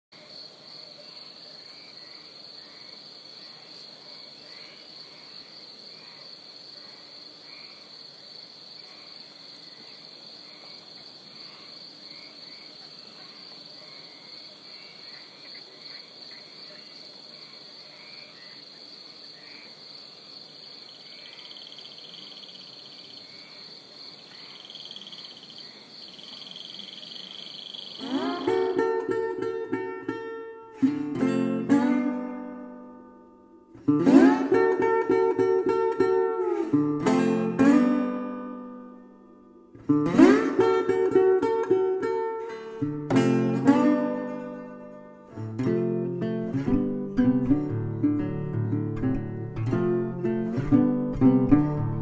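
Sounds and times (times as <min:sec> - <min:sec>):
high-pitched insect trill: 0:20.6 - 0:28.9
frog chirps: 0:20.8 - 0:29.0
acoustic guitar music: 0:28.0 - 0:52.0.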